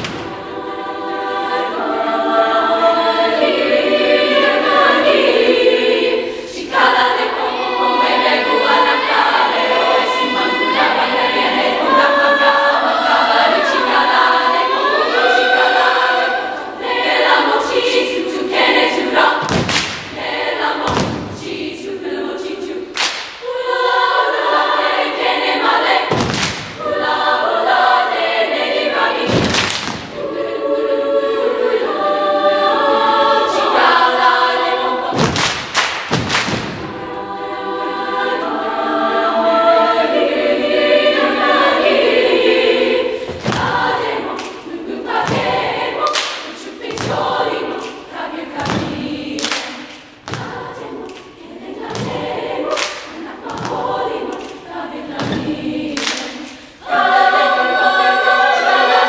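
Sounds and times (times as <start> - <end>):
choir of women singing: 0.0 - 59.0
sharp knocks: 35.1 - 36.9.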